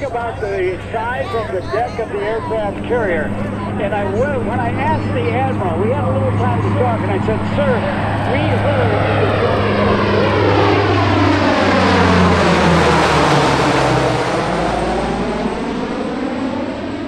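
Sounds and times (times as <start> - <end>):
propeller plane droning overhead: 0.0 - 17.0.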